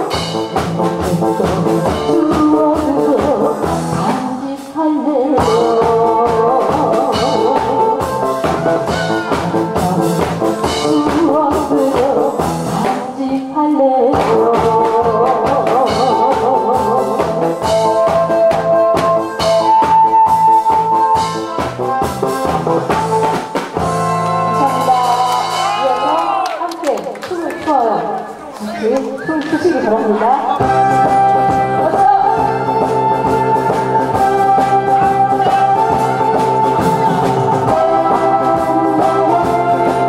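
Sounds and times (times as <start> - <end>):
backing music with drum beat: 0.0 - 26.5, 29.4 - 40.0
woman singing into a microphone: 1.0 - 8.2, 9.5 - 20.3, 31.2 - 40.0.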